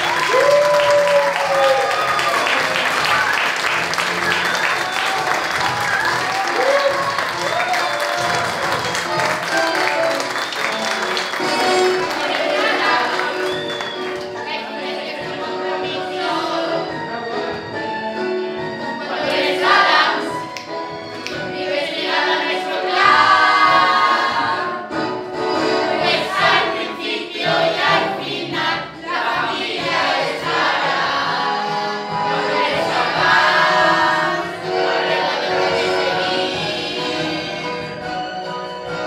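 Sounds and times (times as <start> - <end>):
instrumental accompaniment: 2.0 - 39.0
group singing in chorus: 11.2 - 38.1.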